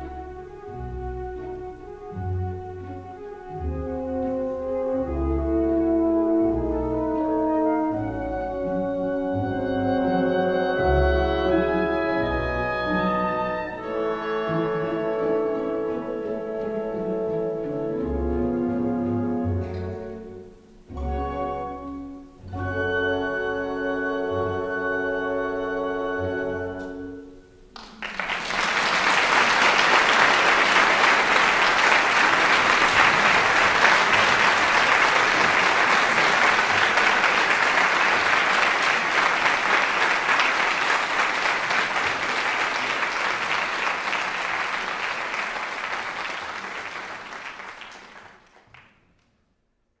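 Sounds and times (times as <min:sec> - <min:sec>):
audience applauding: 0:27.8 - 0:49.2.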